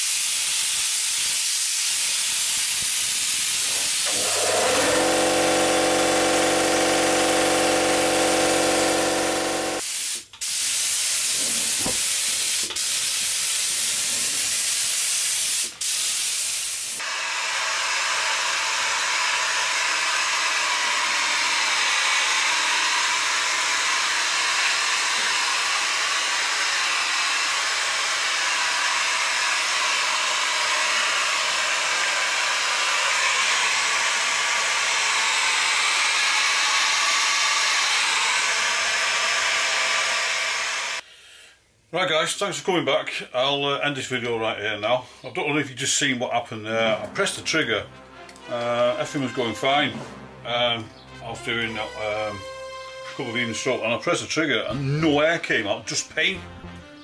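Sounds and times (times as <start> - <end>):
spray gun hissing: 0.0 - 41.0
heat gun blowing: 0.0 - 41.1.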